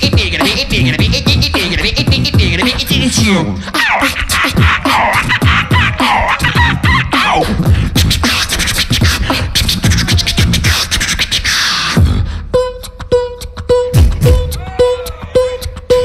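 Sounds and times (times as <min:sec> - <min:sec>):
beatboxing hi-hat and snare clicks: 0:00.0 - 0:16.0
beatboxing kick drums: 0:00.0 - 0:16.0
short pitched tone in rhythm: 0:12.5 - 0:16.0.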